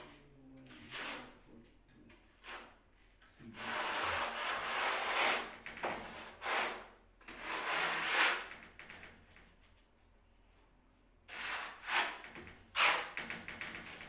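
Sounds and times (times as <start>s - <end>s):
hand scraper scraping wall board: 0.7s - 1.4s, 2.4s - 2.8s, 3.5s - 8.6s, 11.3s - 14.0s.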